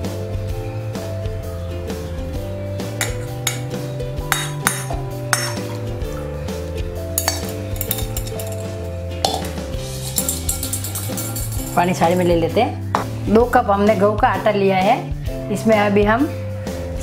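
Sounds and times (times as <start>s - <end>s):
background music: 0.0s - 17.0s
steel strainer clinking on glass bowl: 3.0s - 5.7s, 7.2s - 12.3s.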